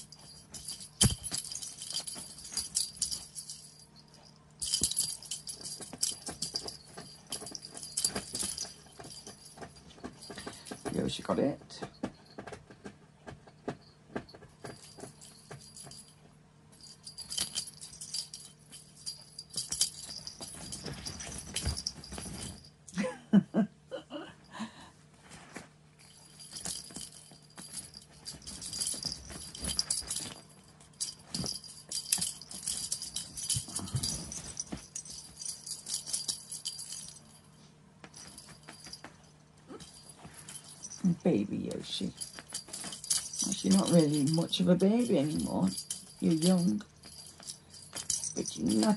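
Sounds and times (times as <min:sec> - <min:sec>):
jingle bells rattling: 0:00.0 - 0:12.6, 0:13.8 - 0:23.1, 0:26.0 - 0:48.9.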